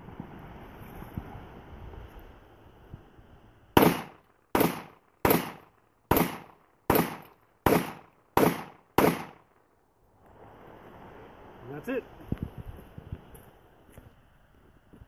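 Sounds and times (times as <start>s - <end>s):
wind noise on microphone: 0.0s - 4.0s, 10.4s - 15.0s
pistol shots: 3.8s - 9.5s.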